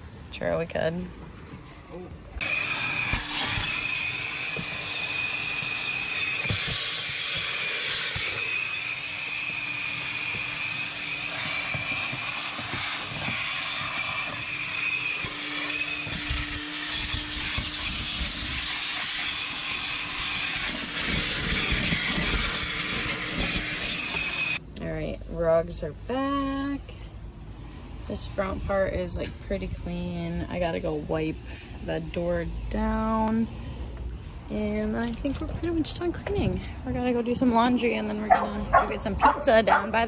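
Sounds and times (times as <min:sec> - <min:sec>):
high pump whine: 0:01.9 - 0:24.6
pressure washer spraying water: 0:02.4 - 0:24.6.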